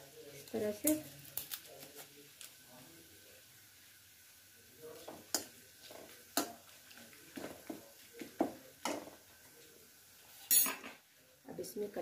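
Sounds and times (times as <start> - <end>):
metal spoon clinking on pan: 10.5 - 11.0.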